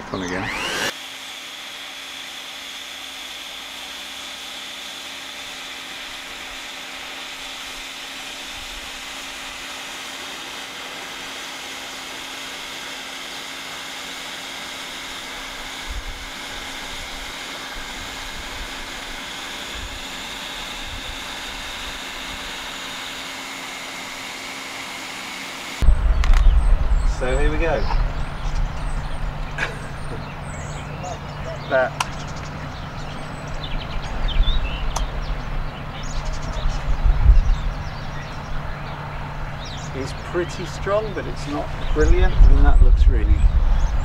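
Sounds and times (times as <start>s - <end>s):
hot-air welding gun blowing: 0.0s - 32.5s.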